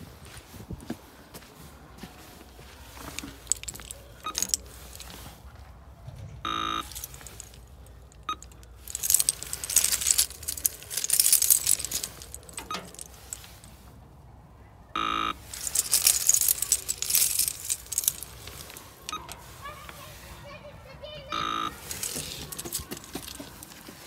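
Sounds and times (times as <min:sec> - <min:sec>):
keys jangling: 0:03.0 - 0:05.2, 0:06.8 - 0:13.7, 0:15.4 - 0:19.4, 0:21.7 - 0:23.9
short electronic beep: 0:06.5 - 0:06.9, 0:15.0 - 0:15.4, 0:21.3 - 0:21.8.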